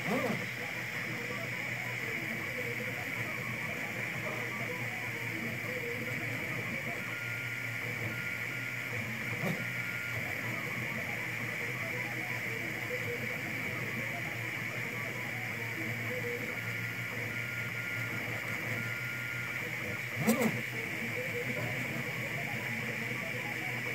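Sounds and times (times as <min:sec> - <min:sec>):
cooling fan whir and hum: 0:00.0 - 0:23.9
stepper motor tones: 0:00.0 - 0:23.9.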